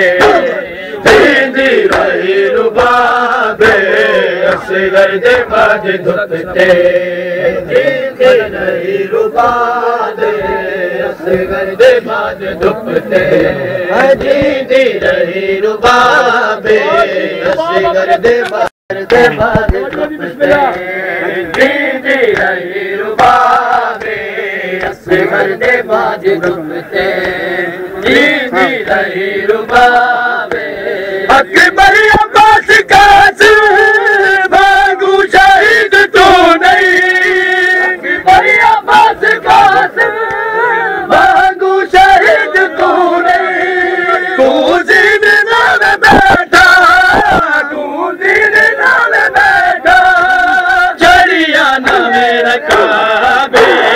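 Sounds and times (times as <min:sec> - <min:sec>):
crowd of men chanting: 0:00.0 - 0:53.9
chest-beating slaps: 0:01.9 - 0:02.2, 0:18.4 - 0:20.9.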